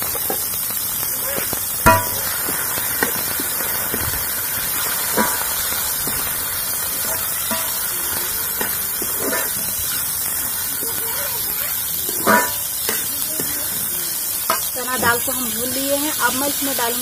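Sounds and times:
lentils sizzling in oil: 0:00.0 - 0:17.0
metal spatula scraping pan: 0:12.1 - 0:13.1.

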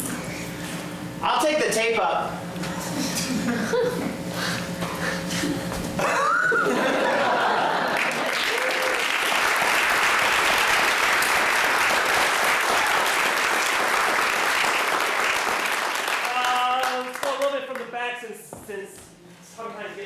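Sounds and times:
audience applauding: 0:07.2 - 0:17.9.

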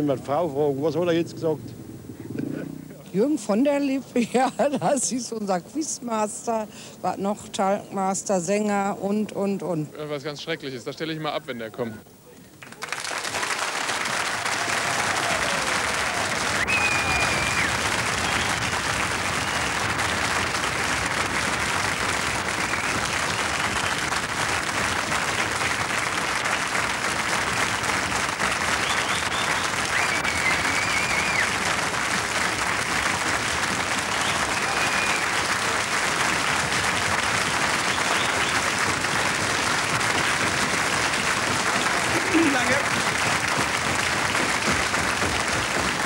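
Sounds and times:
audience applauding: 0:12.6 - 0:46.0.

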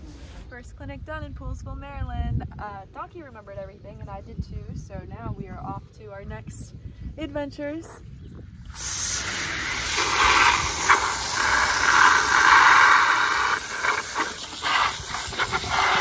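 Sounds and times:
hose nozzle spraying water: 0:08.6 - 0:16.0.

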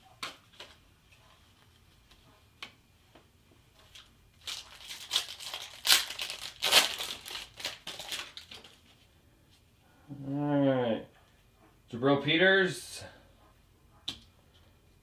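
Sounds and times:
card pack wrapper crinkling and tearing: 0:04.4 - 0:08.9.

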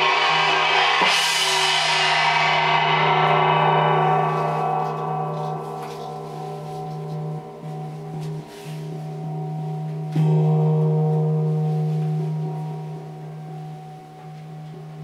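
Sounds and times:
steady low drone: 0:00.0 - 0:14.0
wind gong ringing: 0:00.0 - 0:15.0.

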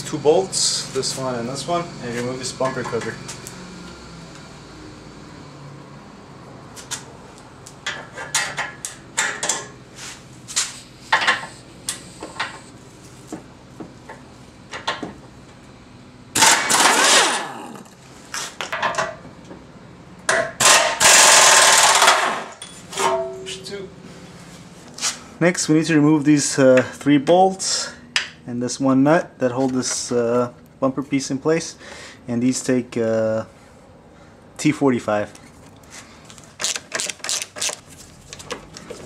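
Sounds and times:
air impact wrench hammering: 0:16.4 - 0:17.9, 0:20.3 - 0:23.3.

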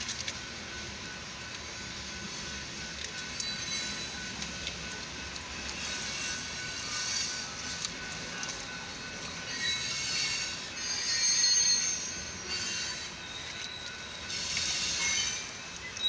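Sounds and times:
low rumble of train cars: 0:00.0 - 0:16.0
train wheels squealing on rails: 0:00.0 - 0:16.0.

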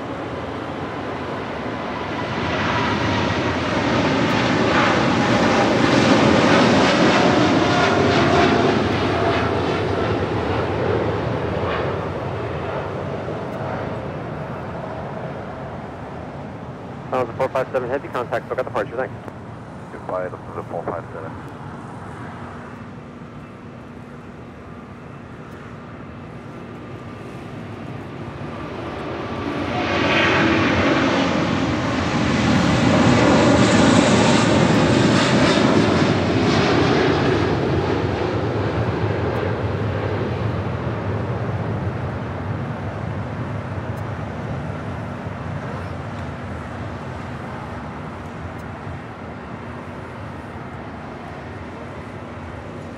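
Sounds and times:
jet engine roar of aircraft takeoff: 0:00.0 - 0:52.9.

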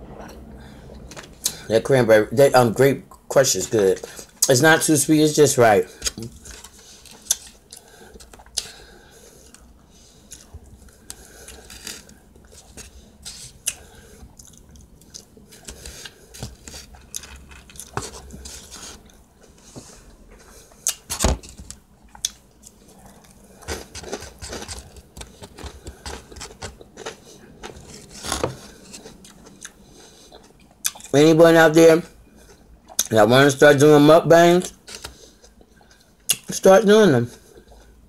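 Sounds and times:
person chewing: 0:05.9 - 0:19.7, 0:20.3 - 0:31.1, 0:32.3 - 0:33.1, 0:34.7 - 0:36.5
plastic fork scraping container: 0:23.6 - 0:29.1.

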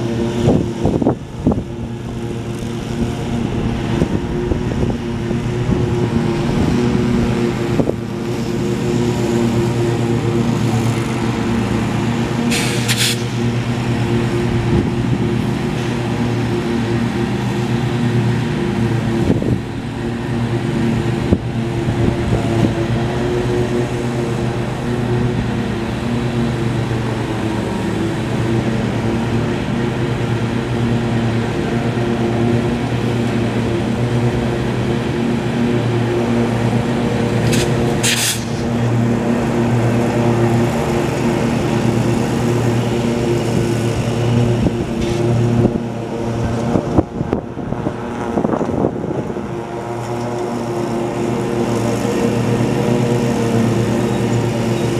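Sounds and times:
diesel locomotive engine running: 0:00.0 - 0:54.9
air brake hiss: 0:12.5 - 0:13.4, 0:37.5 - 0:38.7.

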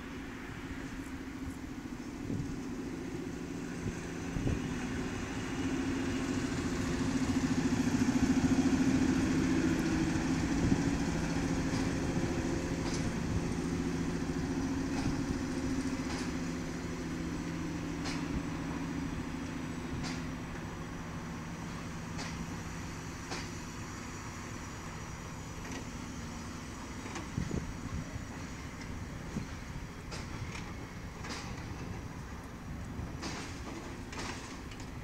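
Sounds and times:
diesel locomotive engine running: 0:00.0 - 0:35.0
train wagons rolling: 0:00.0 - 0:35.0.

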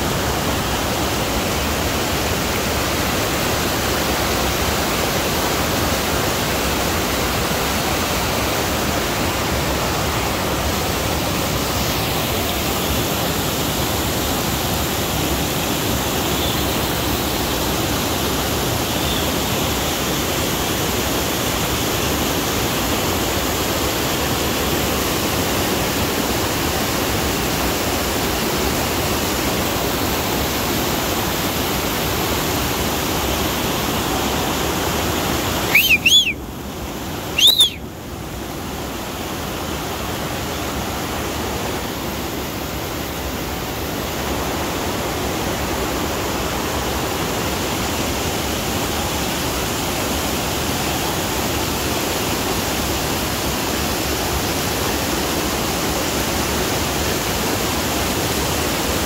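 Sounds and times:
stream rushing over boulders: 0:00.0 - 0:59.0
short loud whistles: 0:35.6 - 0:36.4, 0:37.3 - 0:37.9.

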